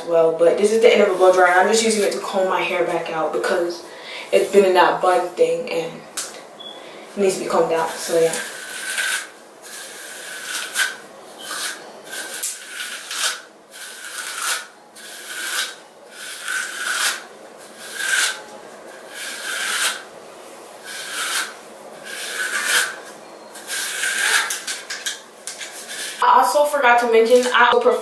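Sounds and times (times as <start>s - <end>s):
comb rasping through hair: 7.3s - 20.1s, 20.8s - 26.2s.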